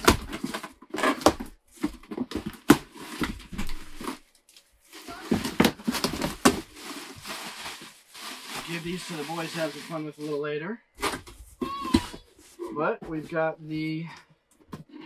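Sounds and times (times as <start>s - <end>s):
plastic packing crinkling: 0.0s - 10.2s.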